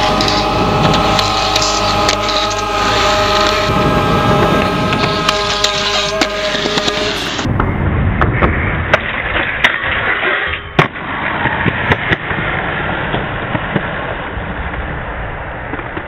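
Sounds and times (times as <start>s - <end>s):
skateboard wheels rolling on concrete: 0.0s - 16.0s
skateboard clacks: 8.2s - 16.0s.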